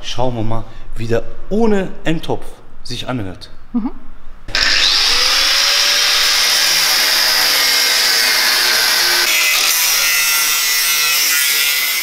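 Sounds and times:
angle grinder cutting steel pipe: 4.5 - 12.0.

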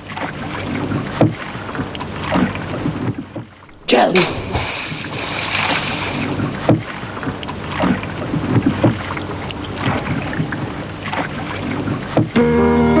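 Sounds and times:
water lapping: 0.0 - 12.4
hand splashing water: 3.7 - 9.1.

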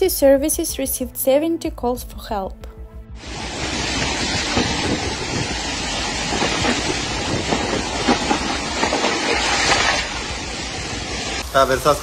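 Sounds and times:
strong wind: 3.2 - 11.5
heavy rain: 3.2 - 12.0.

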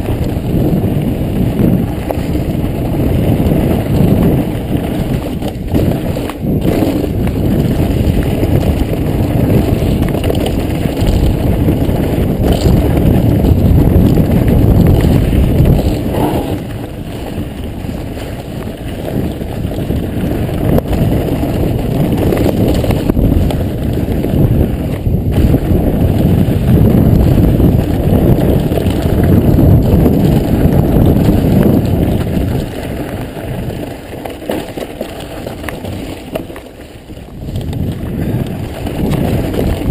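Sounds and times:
bike rattling on trail: 0.0 - 39.9
bike tyre noise on dirt: 0.0 - 39.9
wind rumble on microphone: 0.0 - 39.9.

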